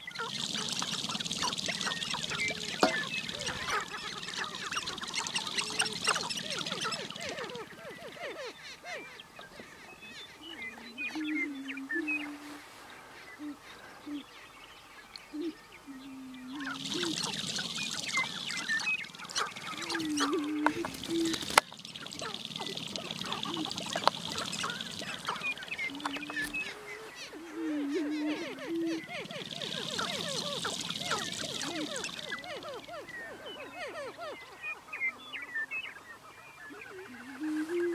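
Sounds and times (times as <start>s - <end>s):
grouse clucking and cackling: 0.0s - 8.5s, 16.5s - 34.4s
low hooting coos: 0.0s - 8.5s, 15.3s - 34.4s
fast rattle: 0.1s - 7.7s, 16.6s - 26.7s, 29.1s - 32.9s.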